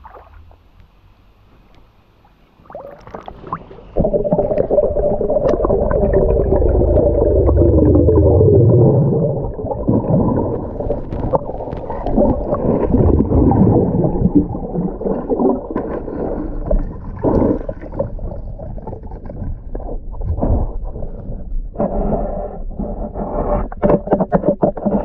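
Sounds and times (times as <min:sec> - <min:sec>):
underwater bubbles gurgling: 0:02.6 - 0:25.0
small clicks and pops: 0:10.6 - 0:12.6.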